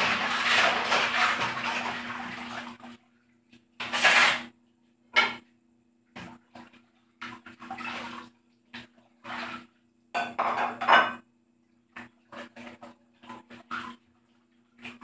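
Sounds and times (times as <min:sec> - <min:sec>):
water splashing: 0:00.0 - 0:03.0, 0:06.2 - 0:09.8, 0:11.9 - 0:15.0.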